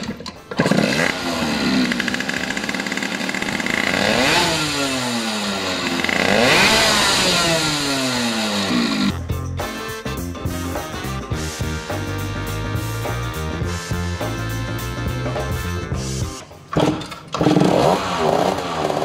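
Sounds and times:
two-stroke motorcycle engine revving: 0:00.5 - 0:09.2, 0:16.7 - 0:19.0.

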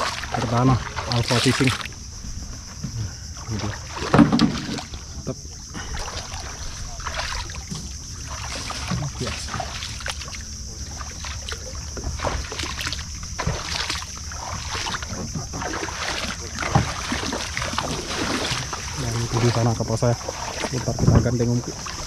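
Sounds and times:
water lapping against boat hull: 0:00.0 - 0:22.0
steady low rumble: 0:04.9 - 0:15.7.

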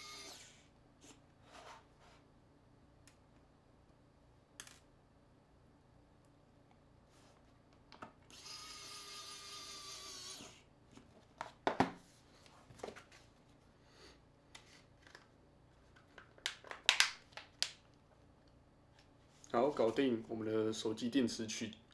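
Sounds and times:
electric screwdriver motor whirring: 0:00.0 - 0:00.6, 0:08.3 - 0:10.6.

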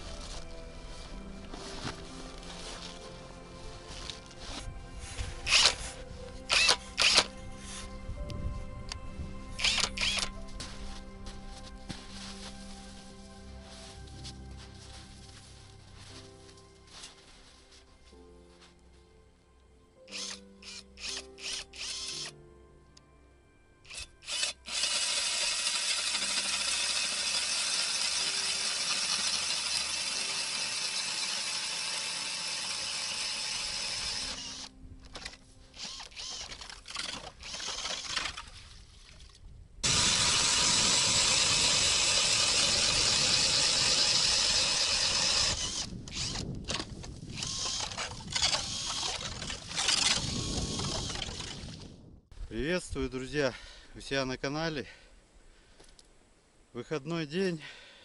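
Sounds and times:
ice auger grinding ice: 0:05.2 - 0:07.3, 0:09.6 - 0:10.3, 0:20.1 - 0:22.3, 0:23.9 - 0:38.5, 0:39.8 - 0:51.9
drill motor whine: 0:05.5 - 0:05.8, 0:06.5 - 0:07.3, 0:09.6 - 0:10.3, 0:20.1 - 0:22.3, 0:23.9 - 0:34.7, 0:35.8 - 0:36.6, 0:39.8 - 0:51.5.

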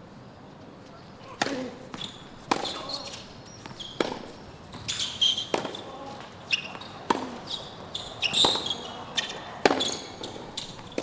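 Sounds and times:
tennis ball hit by racket: 0:01.4 - 0:04.3, 0:05.4 - 0:07.5, 0:08.2 - 0:11.0
shoe squeaks on court: 0:01.9 - 0:11.0.

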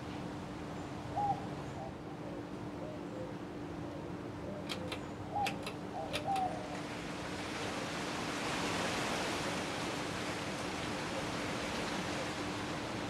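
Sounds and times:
ceiling fan motor hum: 0:00.0 - 0:13.0
pull-chain switch clicks: 0:04.7 - 0:06.5
rush of air from fan blades: 0:05.5 - 0:13.0.

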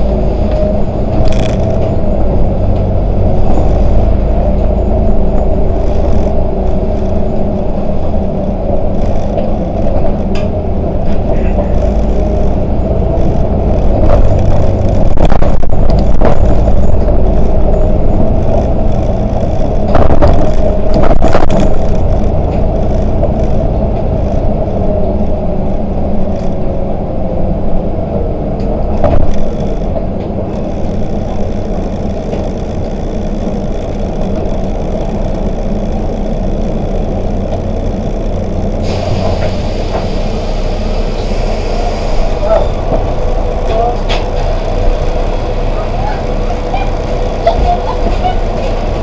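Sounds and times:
bus engine and road rumble: 0:00.0 - 0:49.0
knocks and rattles: 0:08.0 - 0:24.6.

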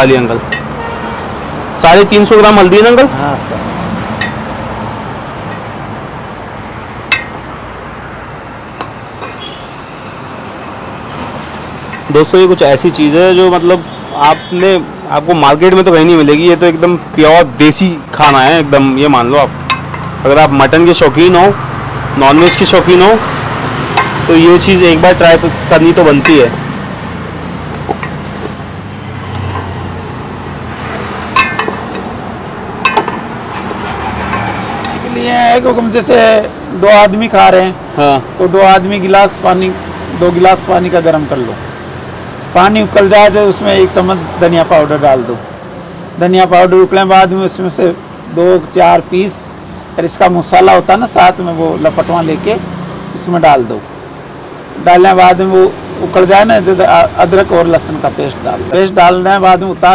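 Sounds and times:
steady background noise: 0:00.0 - 0:59.9
metal ladle clinking on pot: 0:19.6 - 0:20.1, 0:31.3 - 0:32.0.

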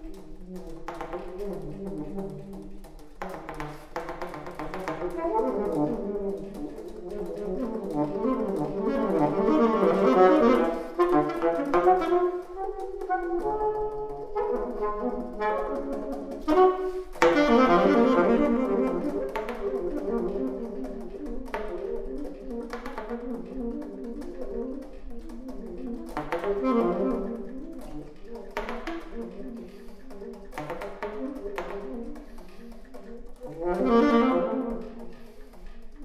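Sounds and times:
alto saxophone playing fast runs: 0:00.0 - 0:02.8, 0:04.4 - 0:36.0.

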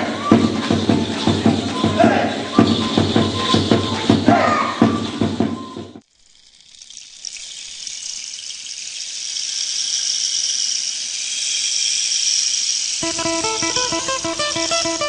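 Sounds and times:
music: 0:00.0 - 0:06.0, 0:13.0 - 0:15.0.

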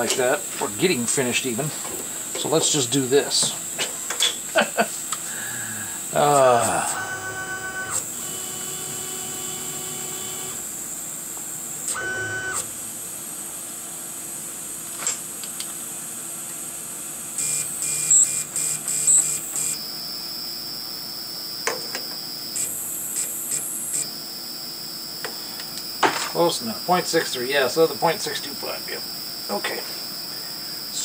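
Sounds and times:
stepper motors whining: 0:06.0 - 0:10.6, 0:11.9 - 0:12.7, 0:17.4 - 0:30.3.

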